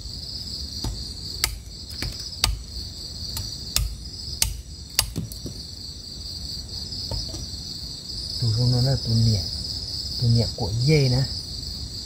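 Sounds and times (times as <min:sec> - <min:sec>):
night insects chirring: 0:00.0 - 0:12.0
machete chopping wood: 0:00.8 - 0:02.7, 0:03.4 - 0:05.6.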